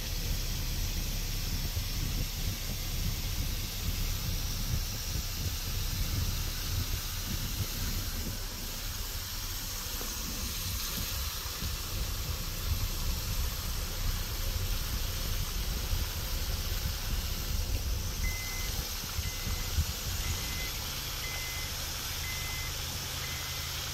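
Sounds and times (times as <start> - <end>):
fountain water hissing: 0.0 - 23.9
low uneven rumble: 0.0 - 23.9.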